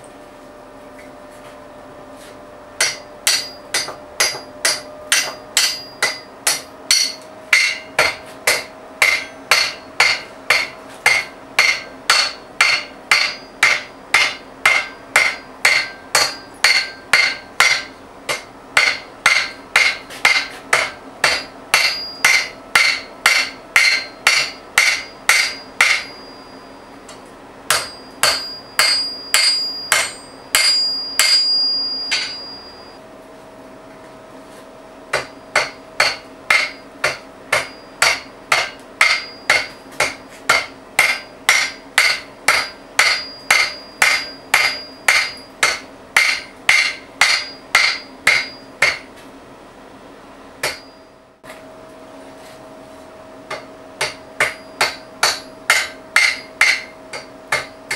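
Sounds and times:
metallic ring: 2.8 - 8.1, 9.0 - 18.0, 21.3 - 33.0, 37.5 - 38.3, 39.0 - 40.3, 41.1 - 48.9, 50.6 - 51.2, 54.4 - 57.9
hammer striking steel on anvil: 2.8 - 33.0, 35.1 - 49.2, 50.6 - 51.6, 53.5 - 57.9.

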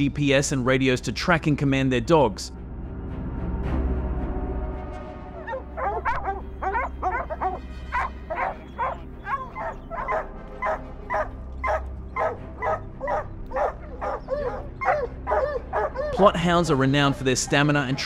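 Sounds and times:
hounds barking: 5.4 - 16.3.

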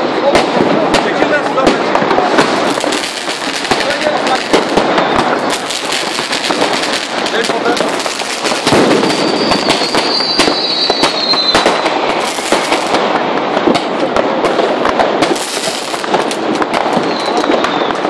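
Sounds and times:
fireworks bangs and crackling: 0.0 - 18.0
rocket whistle: 9.0 - 12.0, 17.0 - 18.0.

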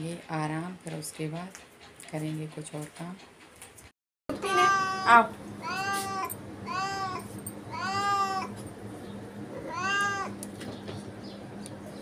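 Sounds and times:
cat meowing: 4.4 - 8.6, 9.6 - 10.4.

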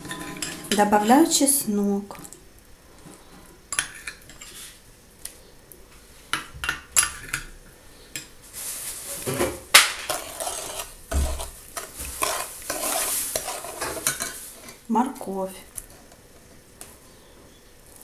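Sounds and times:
metal spoon stirring liquid in bowl: 0.0 - 1.4, 10.1 - 14.4.

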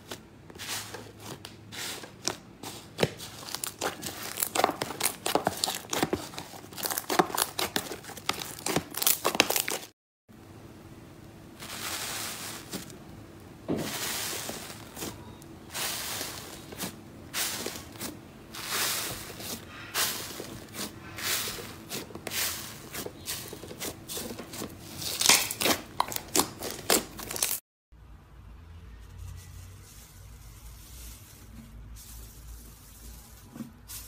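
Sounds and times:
hands squishing foam slime: 0.0 - 9.9, 13.8 - 27.6
slime bubbles crackling: 2.2 - 9.9.

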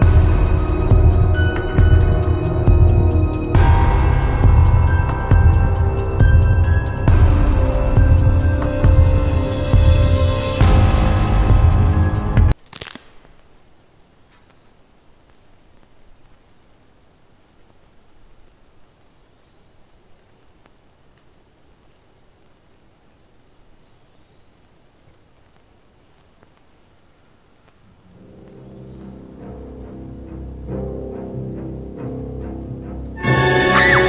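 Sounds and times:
high-pitched insect drone: 0.0 - 12.3, 28.0 - 34.0
faint insect chirp: 0.0 - 34.0.

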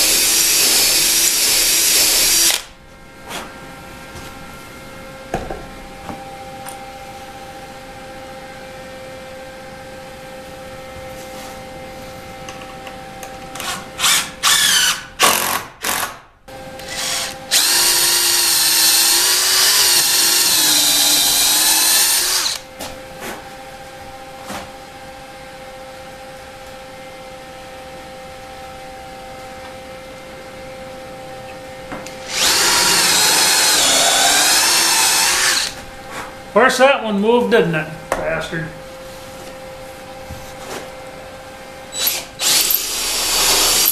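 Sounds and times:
cordless drill driving screws: 0.0 - 2.7, 13.6 - 16.2, 16.8 - 22.6, 32.2 - 35.8, 42.0 - 43.9.

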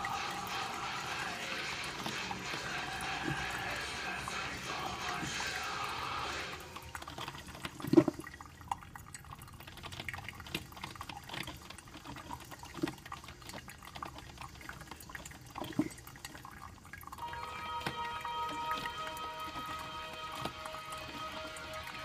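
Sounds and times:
coffee maker gurgling: 0.0 - 22.0.

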